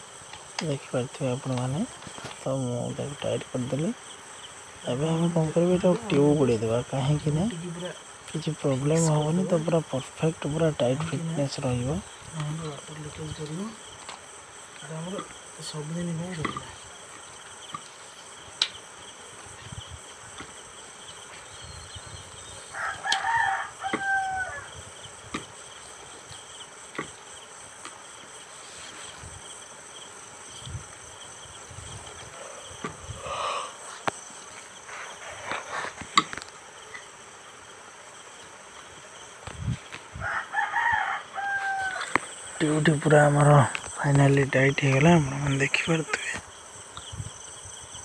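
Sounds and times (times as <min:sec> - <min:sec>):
insects droning: 0:00.0 - 0:48.0
rooster crowing: 0:22.7 - 0:24.8, 0:40.2 - 0:42.4.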